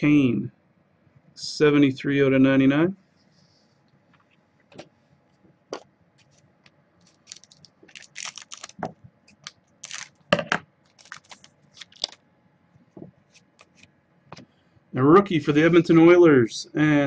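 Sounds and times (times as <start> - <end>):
trading cards clicking and rustling: 7.0 - 10.1, 10.9 - 12.2.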